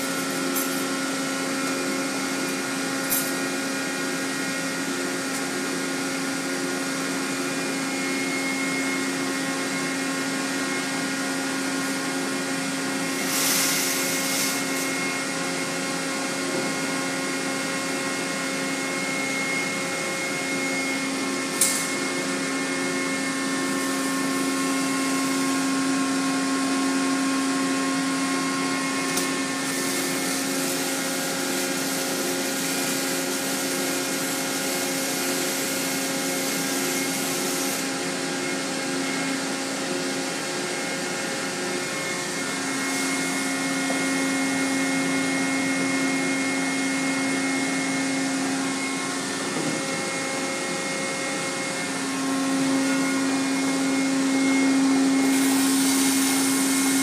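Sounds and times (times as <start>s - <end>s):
spraying hiss: 13.2s - 14.8s, 55.2s - 57.0s.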